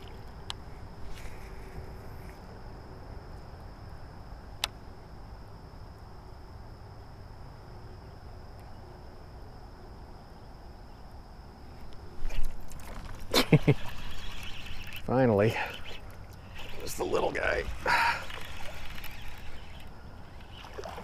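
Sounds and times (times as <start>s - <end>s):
water: 0.0s - 0.4s, 12.2s - 21.0s
insects droning: 0.0s - 21.0s
wind: 0.0s - 21.0s.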